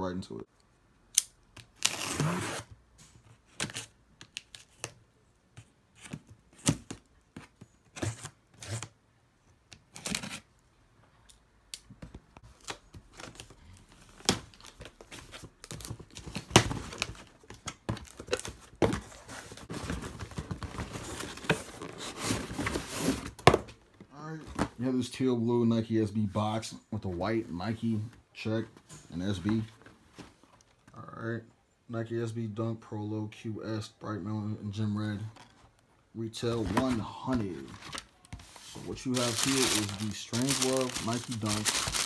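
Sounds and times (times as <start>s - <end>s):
packing tape ripped off box: 1.2s - 2.7s.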